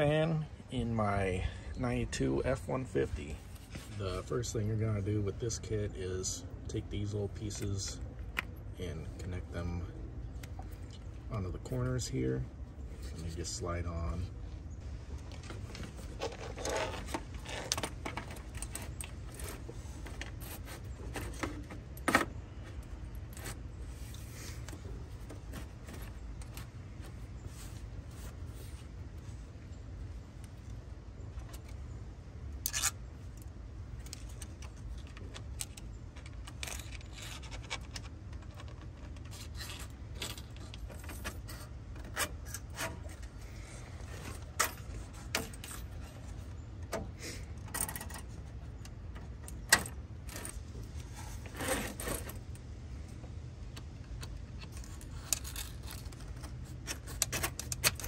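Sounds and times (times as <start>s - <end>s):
clicks and rattles of handling parts: 15.2s - 28.4s, 32.5s - 58.0s.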